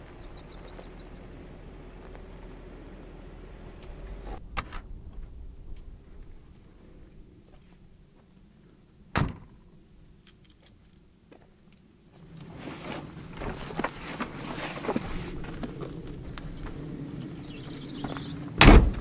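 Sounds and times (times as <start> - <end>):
straps and buckles jangling: 10.2 - 11.1
backpack fabric rustling: 12.2 - 17.0.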